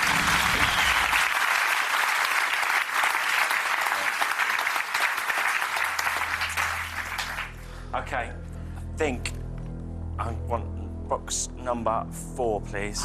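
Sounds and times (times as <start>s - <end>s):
studio audience applauding: 0.0s - 7.8s.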